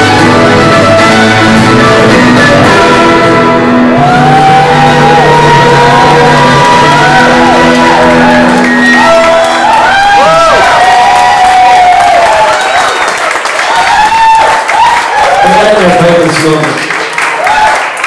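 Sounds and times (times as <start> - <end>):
live band sustained chord: 0.0 - 9.9
audience whooping and shouting: 0.1 - 16.6, 17.2 - 18.0.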